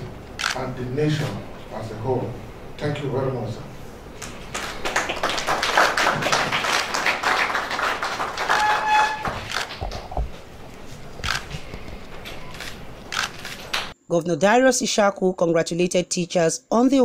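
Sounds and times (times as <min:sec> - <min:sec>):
group clapping: 0:04.2 - 0:10.1, 0:13.7 - 0:13.9.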